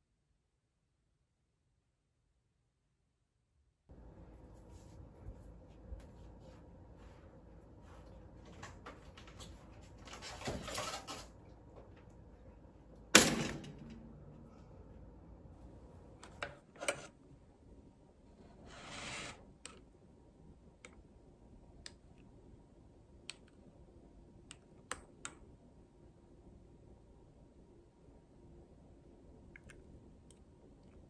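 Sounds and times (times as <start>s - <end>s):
soft rustle: 4.2s - 10.4s.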